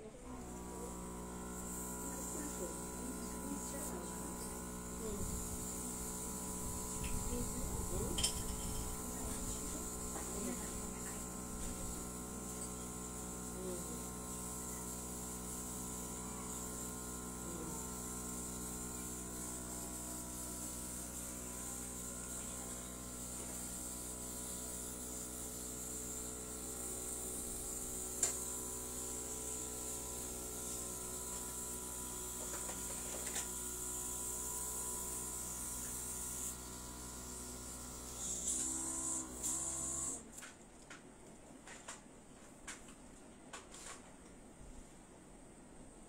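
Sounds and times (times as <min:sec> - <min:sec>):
mechanical hum: 0:00.0 - 0:46.0.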